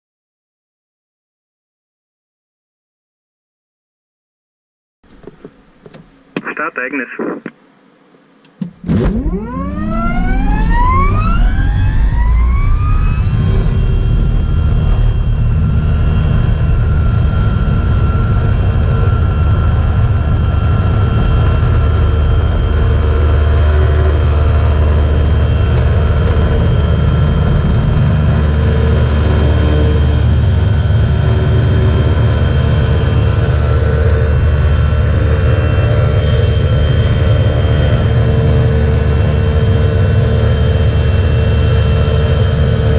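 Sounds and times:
electric motor whine: 7.7s - 42.9s
heavy low rumble: 9.0s - 38.4s.

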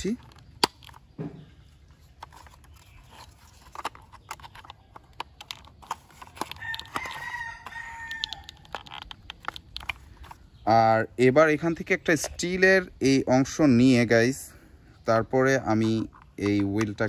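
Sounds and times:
plastic toy clicks and taps: 4.3s - 10.0s
rooster crowing: 6.5s - 8.6s.

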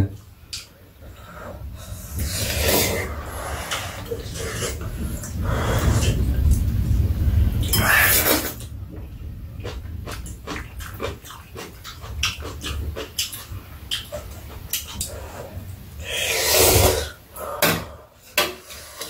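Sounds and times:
wet clicks and smacks: 8.6s - 15.2s
noodles slurped and chewed: 9.6s - 17.2s.

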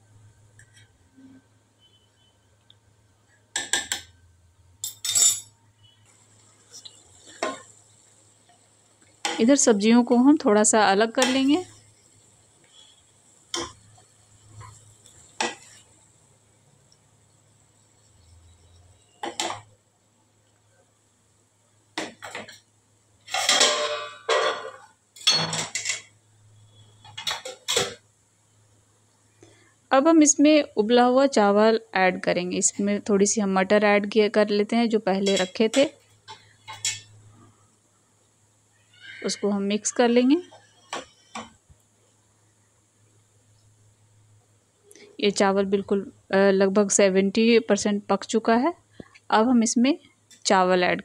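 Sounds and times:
metal spoon scraping a pan: 4.8s - 7.8s, 12.6s - 16.0s, 23.3s - 26.1s, 35.2s - 37.2s.

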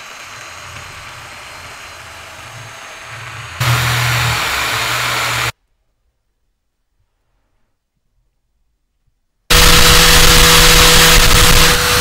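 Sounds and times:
electric drill motor running: 0.0s - 5.5s, 9.5s - 12.0s
sanding drum grinding rust: 0.0s - 5.5s, 9.5s - 12.0s.

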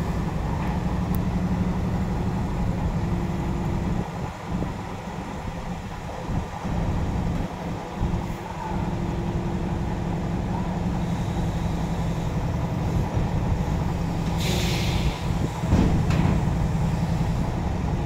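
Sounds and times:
heavy diesel engines running: 0.0s - 18.0s
air hissing: 14.3s - 15.7s.

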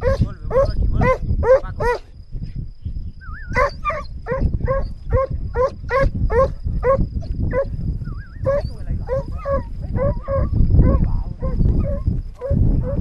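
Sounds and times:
hound baying: 0.0s - 2.1s, 3.5s - 7.8s, 8.4s - 13.0s.

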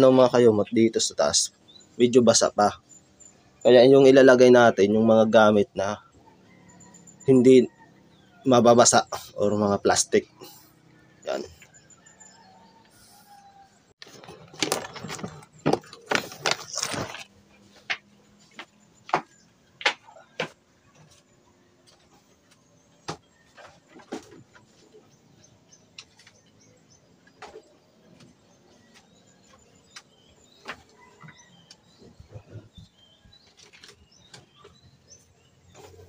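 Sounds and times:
household items clattering on bamboo: 14.0s - 22.3s, 23.0s - 26.6s, 27.2s - 34.9s.

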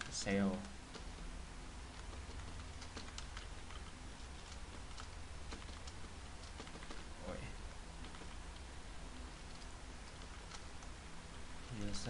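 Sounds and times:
low steady hum: 0.0s - 12.0s
keyboard key clicks: 2.0s - 7.1s.

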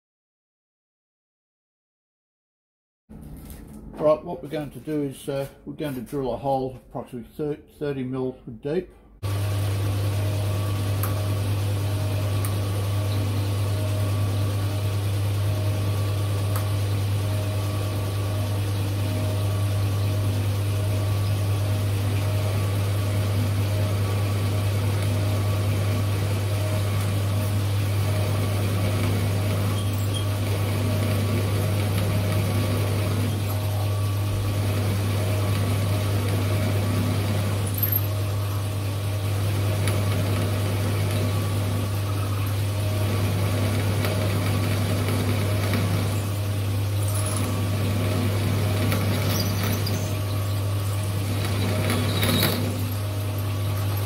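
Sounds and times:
drilling machine motor hum: 9.2s - 54.0s
drill boring into metal: 28.0s - 33.6s, 47.0s - 50.4s, 51.1s - 53.0s.

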